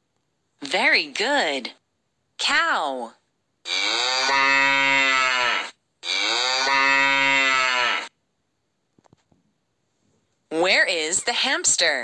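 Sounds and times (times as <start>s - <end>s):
cow mooing: 3.7s - 8.1s.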